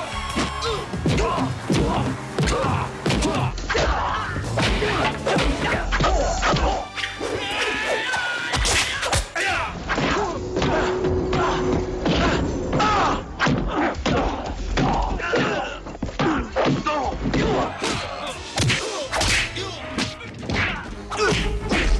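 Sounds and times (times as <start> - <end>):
background music: 0.0 - 21.9.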